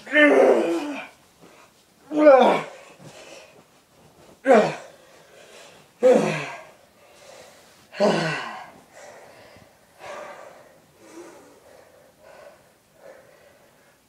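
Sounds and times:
person calling out: 0:00.0 - 0:01.1
person breathing: 0:04.8 - 0:05.9, 0:06.6 - 0:14.0.

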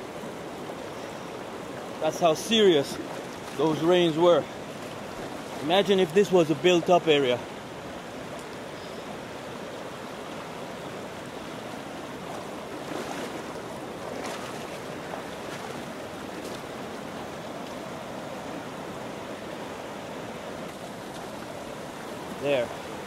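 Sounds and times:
stream water rushing over rocks: 0:00.0 - 0:23.0.

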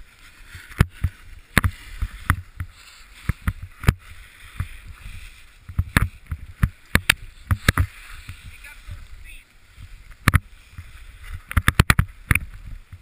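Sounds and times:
skis scraping over snow: 0:00.0 - 0:13.0
sharp clicks and knocks: 0:11.4 - 0:12.6.

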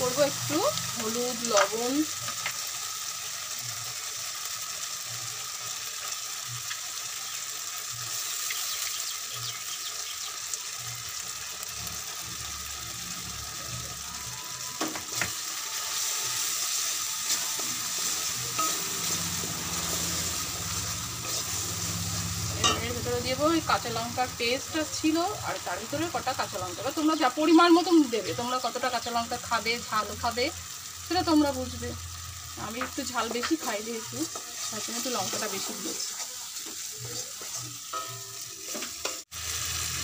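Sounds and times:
spices sizzling in hot oil: 0:00.0 - 0:40.0
wooden spatula stirring in pan: 0:32.7 - 0:39.3.

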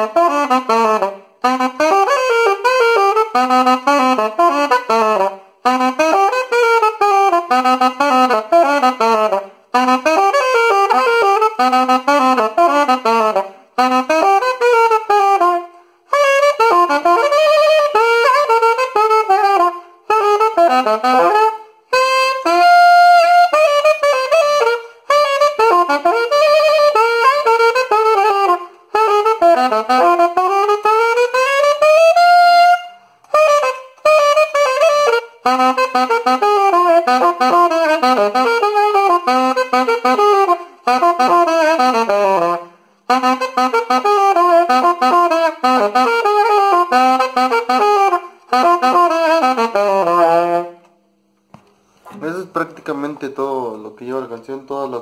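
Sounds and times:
solo saxophone melody: 0:00.0 - 0:51.2
saxophonist breathing: 0:24.8 - 0:25.1, 0:32.9 - 0:33.3, 0:42.6 - 0:43.1, 0:51.6 - 0:52.2.

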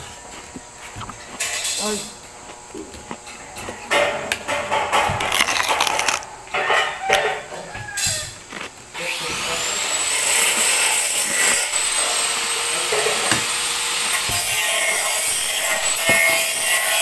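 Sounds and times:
cutlery clinking and scraping: 0:01.4 - 0:02.1, 0:03.3 - 0:08.2.

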